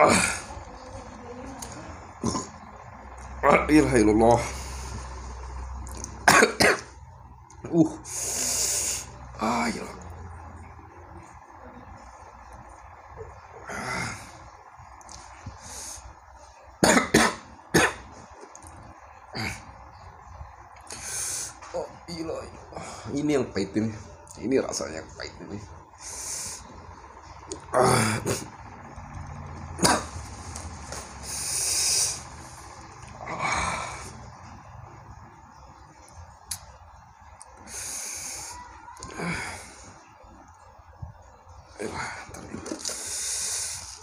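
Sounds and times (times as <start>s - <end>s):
man coughing: 6.2s - 7.0s, 16.8s - 18.1s, 29.8s - 30.2s
man hissing breath: 8.0s - 9.2s, 31.2s - 32.4s, 37.6s - 38.6s.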